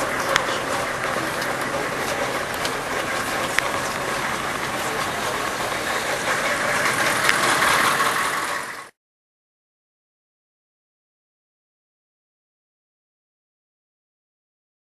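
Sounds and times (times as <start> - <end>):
street din: 0.0 - 9.0
vehicle engine idling: 0.0 - 9.0.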